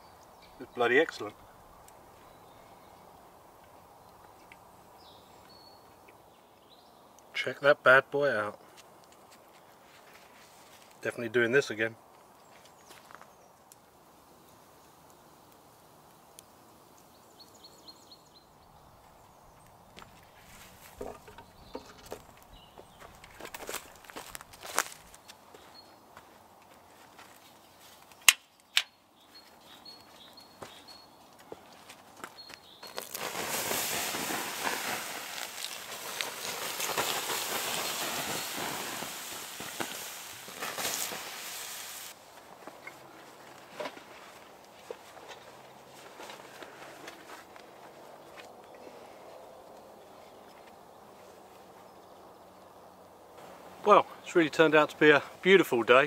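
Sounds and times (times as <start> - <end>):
footsteps on dry woodland ground: 8.6 - 11.0, 12.1 - 13.5, 18.9 - 28.2, 29.2 - 49.1
knocks and rustles: 20.0 - 25.0
water hissing on hot ash: 32.8 - 42.2.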